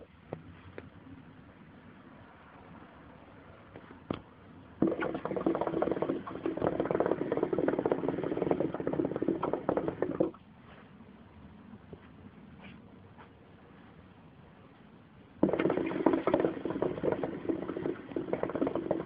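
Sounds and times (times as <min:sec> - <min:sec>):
hookah water bubbling: 0:04.8 - 0:10.4, 0:15.4 - 0:19.0.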